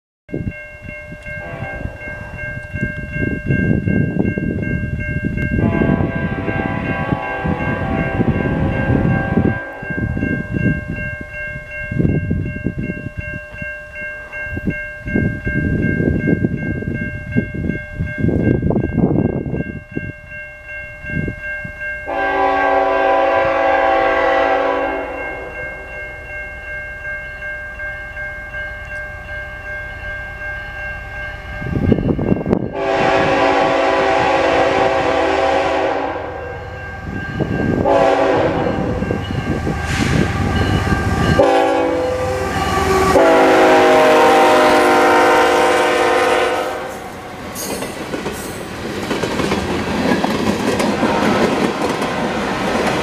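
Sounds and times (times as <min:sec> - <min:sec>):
steady high ringing tones: 0:00.3 - 0:34.0, 0:35.4 - 0:45.9
locomotive air horn blasts: 0:01.4 - 0:02.0, 0:05.6 - 0:09.9, 0:22.1 - 0:25.6, 0:32.7 - 0:36.6, 0:37.8 - 0:39.0, 0:41.0 - 0:47.3.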